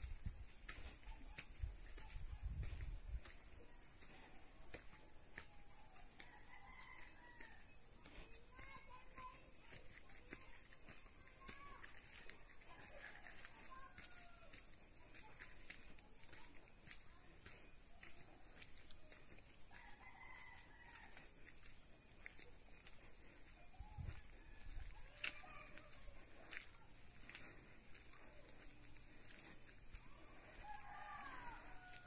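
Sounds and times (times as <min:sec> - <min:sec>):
rooster crowing: 0:06.2 - 0:07.8, 0:19.7 - 0:21.2, 0:30.1 - 0:32.0.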